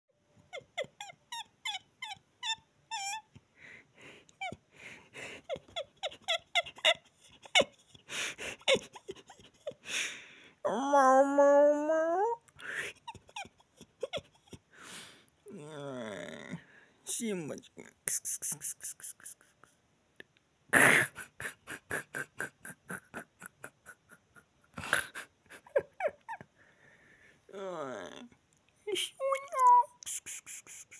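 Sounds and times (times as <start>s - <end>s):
person laughing breathily: 3.7s - 6.8s, 20.8s - 26.9s
person giggling: 20.8s - 26.5s.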